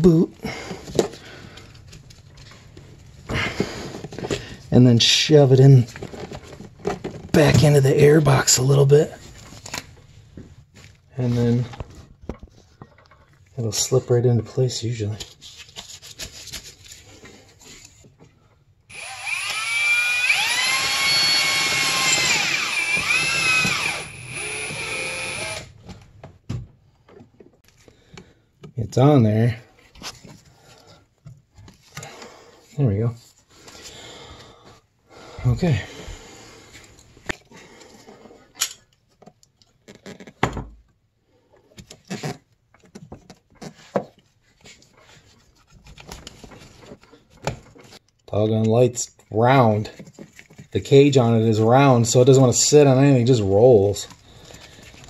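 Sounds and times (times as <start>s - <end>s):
small electric motor whining: 18.9s - 25.7s
plastic hoses clicking and rubbing: 36.7s - 51.0s.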